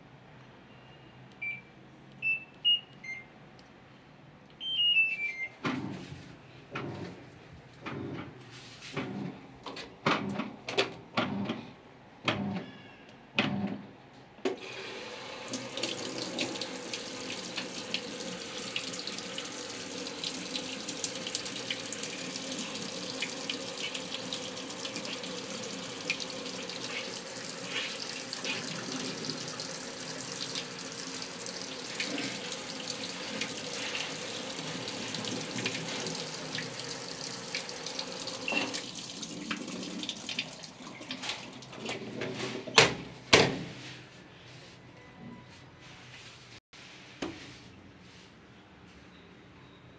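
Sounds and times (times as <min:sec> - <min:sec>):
water pouring into washing machine: 0:14.6 - 0:42.2.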